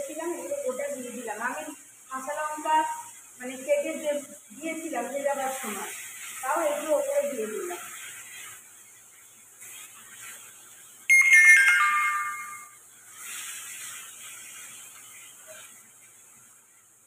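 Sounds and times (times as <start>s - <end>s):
food sizzling in a wok: 0.0s - 17.0s
electronic chime: 11.1s - 12.8s.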